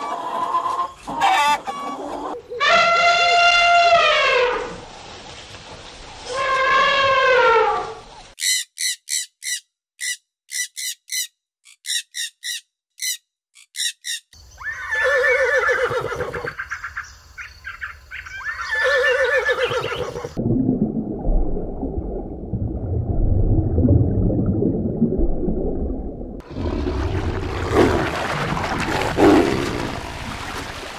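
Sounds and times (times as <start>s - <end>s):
short shrill calls: 8.4s - 15.7s
horse whinnying: 14.6s - 16.5s, 18.4s - 20.4s
low steady rumbling: 20.4s - 30.2s.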